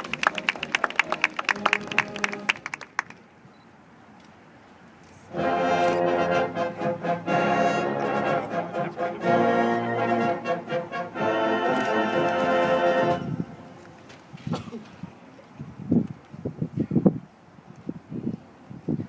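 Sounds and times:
marching band playing: 0:00.0 - 0:02.8, 0:05.3 - 0:13.8
brass sustained chord: 0:05.3 - 0:13.9.

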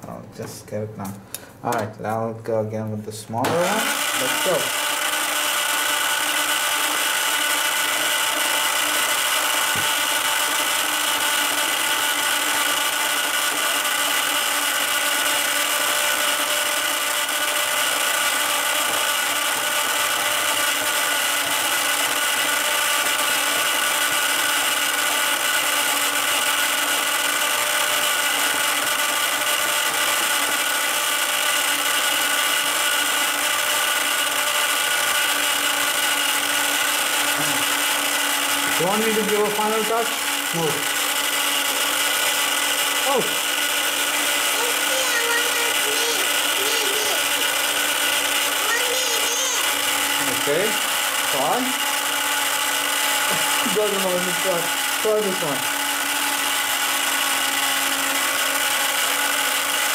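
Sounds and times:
small electric motor whirring: 0:03.5 - 0:59.9.

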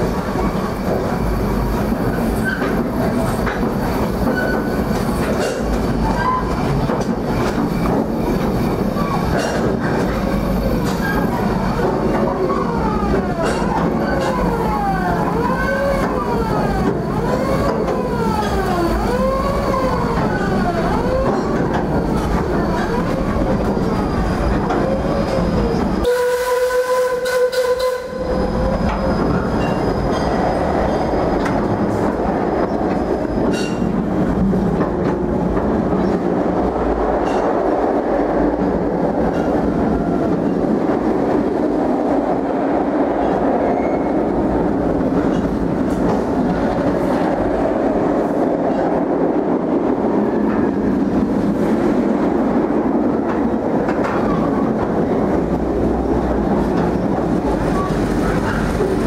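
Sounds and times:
train wheels clickety-clack: 0:00.0 - 0:26.1, 0:27.1 - 0:59.0
steam whistle blast: 0:26.0 - 0:28.2.

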